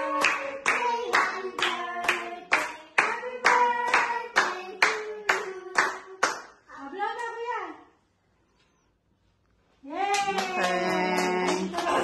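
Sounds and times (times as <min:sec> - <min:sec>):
group singing: 0:00.0 - 0:06.2
people clapping in time: 0:10.1 - 0:12.0.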